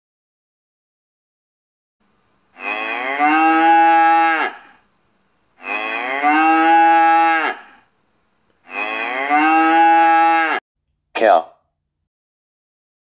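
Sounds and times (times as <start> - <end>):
cow mooing: 2.6 - 4.8, 5.6 - 7.9, 8.6 - 10.6.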